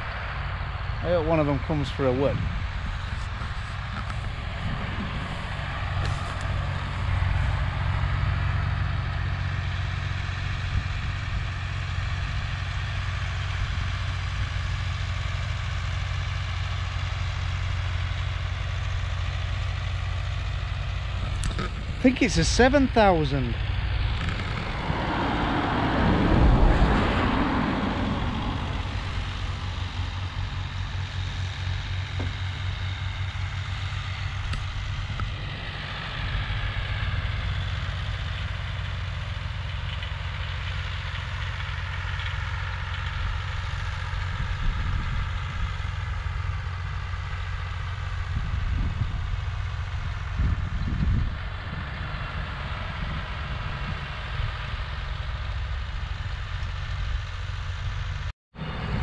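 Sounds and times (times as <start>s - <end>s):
engine idling: 0.0s - 59.0s
vehicle passing: 1.0s - 10.6s, 21.3s - 38.6s, 58.6s - 59.0s.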